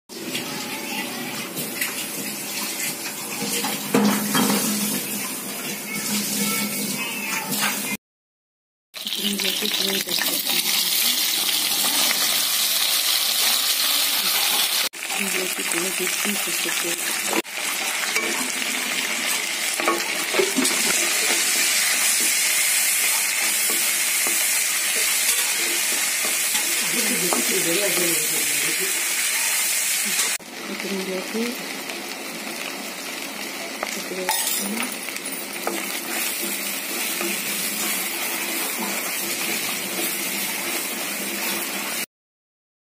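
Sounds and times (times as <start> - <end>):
hot oil sizzling in a pan: 0.1 - 7.4, 9.0 - 42.1
wooden spatula scraping pan: 35.6 - 42.0.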